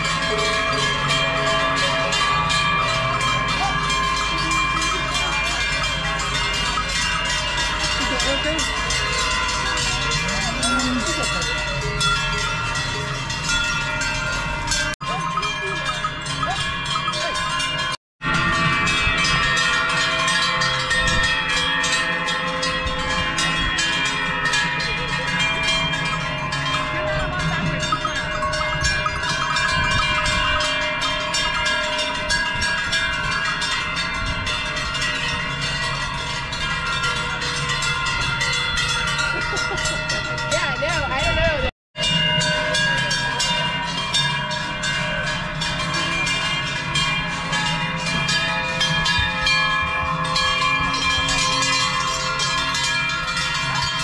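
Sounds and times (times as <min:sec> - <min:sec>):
cowbells clanging: 0:00.0 - 0:54.0.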